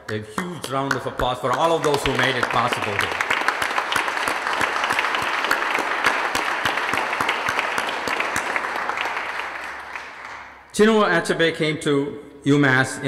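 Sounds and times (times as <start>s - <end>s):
audience applauding: 0.4s - 10.7s.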